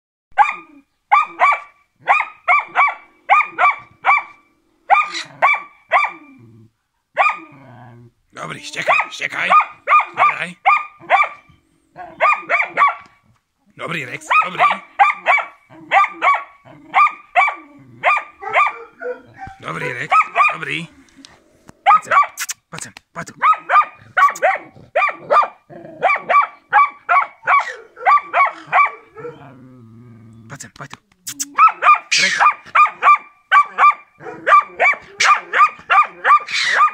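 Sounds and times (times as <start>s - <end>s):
dog barking: 0.4s - 6.3s, 7.2s - 7.6s, 8.8s - 13.2s, 14.2s - 20.8s, 21.8s - 22.4s, 23.4s - 29.5s, 31.5s - 36.9s.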